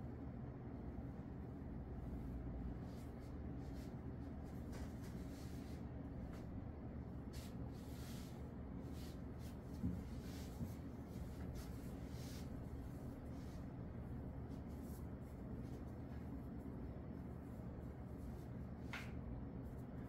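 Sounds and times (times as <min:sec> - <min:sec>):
low room hum: 0:00.0 - 0:20.0
ink brush swishing on paper: 0:02.0 - 0:06.4, 0:07.2 - 0:20.0.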